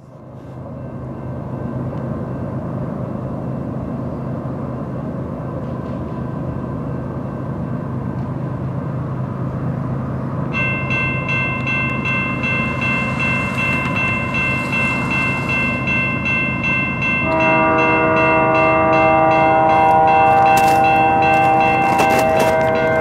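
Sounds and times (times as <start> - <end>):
freight train rumble: 0.0 - 23.0
level crossing bell ringing: 10.5 - 23.0
locomotive horn chord: 17.0 - 23.0.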